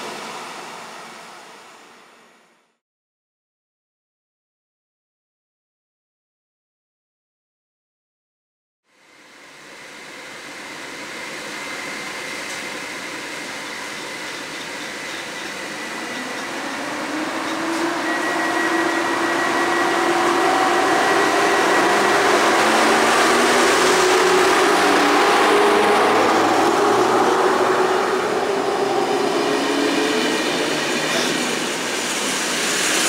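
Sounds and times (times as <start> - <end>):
electric locomotive accelerating: 0.0 - 2.7, 9.1 - 33.0.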